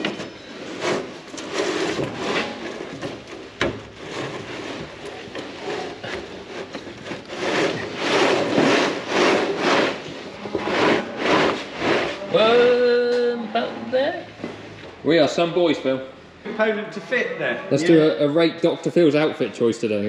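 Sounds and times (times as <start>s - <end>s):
conveyor belt scraping on steel floor: 0.0s - 13.0s.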